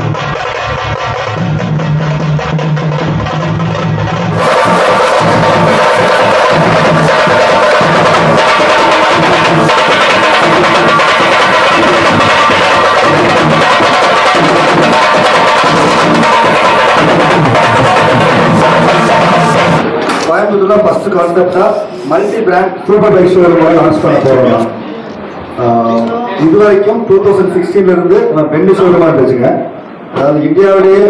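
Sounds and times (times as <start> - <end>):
loud music with drums: 0.0 - 20.2.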